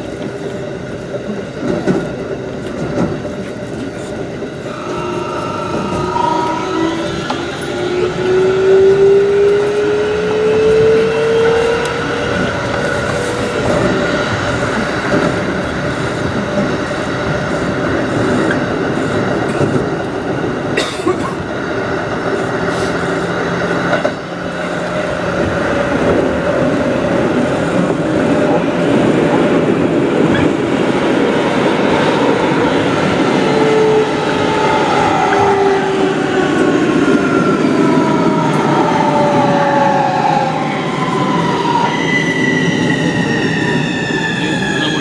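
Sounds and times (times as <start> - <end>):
electric train motors whining: 3.9 - 16.6.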